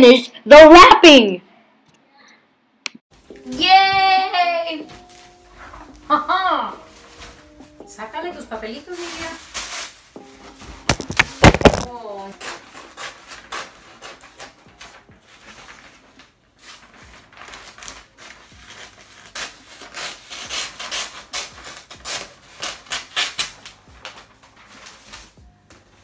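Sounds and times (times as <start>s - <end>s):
wrapping paper rustling: 4.8s - 25.4s.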